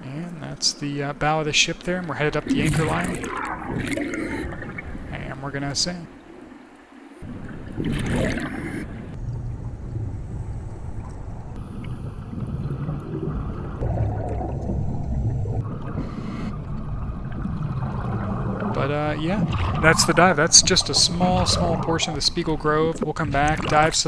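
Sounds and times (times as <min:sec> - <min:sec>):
exhaled bubbles gurgling: 0:02.3 - 0:10.2, 0:10.9 - 0:24.0
low underwater rumble: 0:02.4 - 0:24.0.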